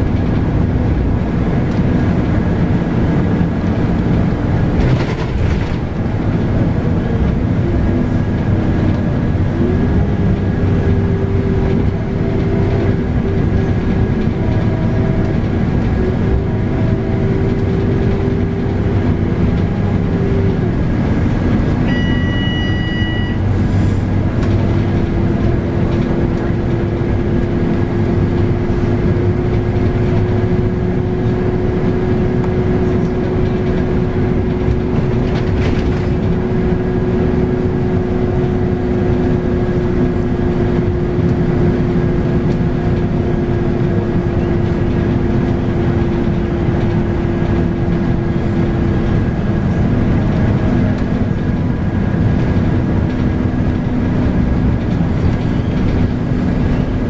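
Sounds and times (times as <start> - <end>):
bus engine rumble: 0.0 - 57.0
transmission whine: 9.5 - 29.4
short electronic beep: 21.9 - 23.5.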